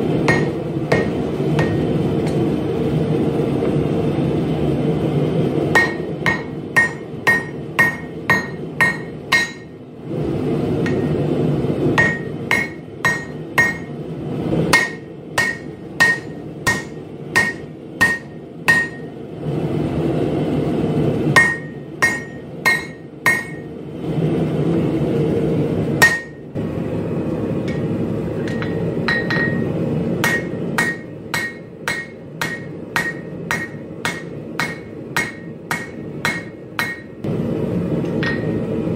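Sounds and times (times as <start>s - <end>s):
hammer striking metal on anvil: 0.2s - 2.5s, 5.7s - 9.8s, 10.8s - 11.2s, 12.0s - 14.0s, 14.7s - 19.2s, 21.4s - 23.7s, 26.0s - 26.4s, 27.6s - 37.2s, 38.0s - 38.7s.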